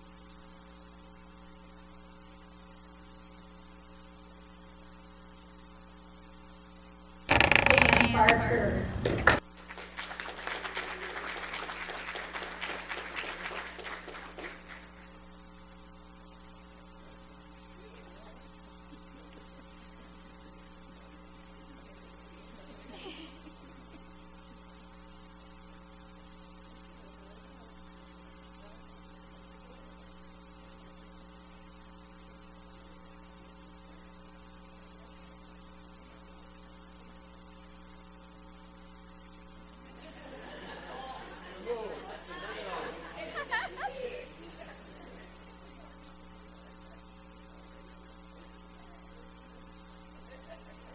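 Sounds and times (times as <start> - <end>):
electrical mains hum: 0.0 - 50.9
audience applauding: 8.9 - 15.1, 40.4 - 45.4.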